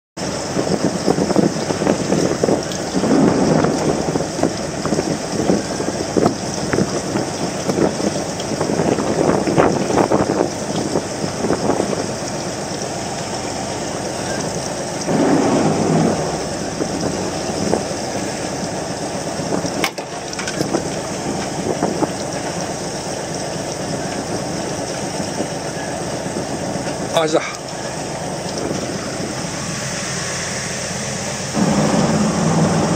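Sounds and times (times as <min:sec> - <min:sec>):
wind buffeting microphone: 0:00.2 - 0:32.9.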